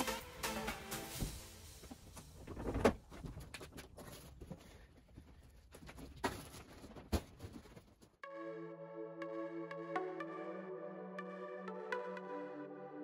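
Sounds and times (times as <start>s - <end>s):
background music: 0.0s - 1.9s, 8.2s - 13.0s.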